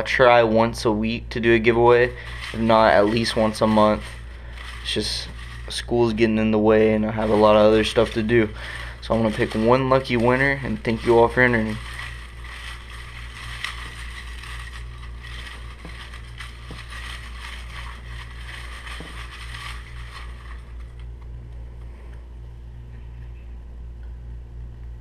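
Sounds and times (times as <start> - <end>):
steady low hum: 0.0 - 25.0
paper slips rustling in glass bowl: 1.4 - 21.2.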